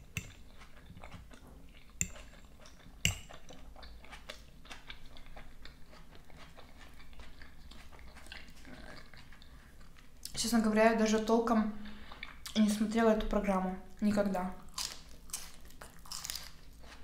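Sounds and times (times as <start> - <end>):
chewing salad: 0.0 - 11.3, 12.0 - 12.9, 14.6 - 17.0
fork clicking on plate: 2.0 - 2.4, 3.0 - 3.4.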